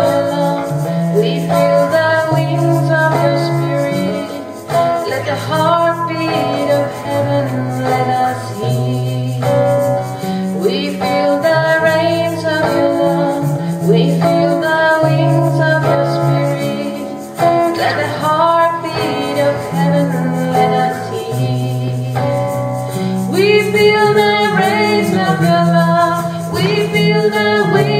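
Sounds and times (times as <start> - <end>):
guitar accompaniment: 0.0 - 27.9
woman singing slow song: 0.0 - 27.9.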